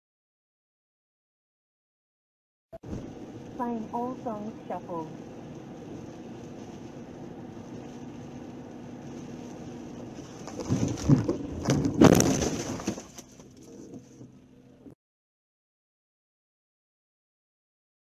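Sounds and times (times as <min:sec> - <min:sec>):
car cabin and tyre noise: 0:02.8 - 0:15.0
loud thumps and knocks: 0:10.5 - 0:13.1.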